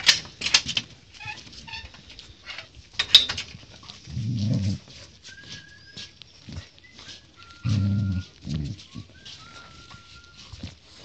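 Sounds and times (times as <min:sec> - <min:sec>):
puppies scuffling: 0:00.0 - 0:11.0
puppy growling: 0:03.8 - 0:05.6, 0:06.5 - 0:11.0
puppy whining: 0:03.8 - 0:11.0.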